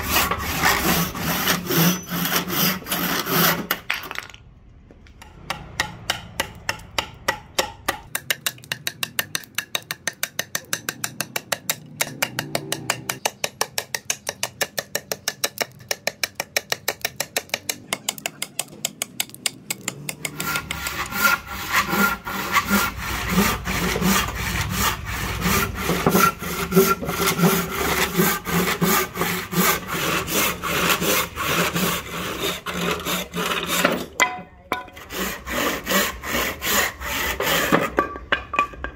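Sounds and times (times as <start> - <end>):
handsaw cutting wood: 0.0 - 3.8, 19.9 - 34.2, 34.9 - 38.0
blade chopping wood: 5.4 - 20.8.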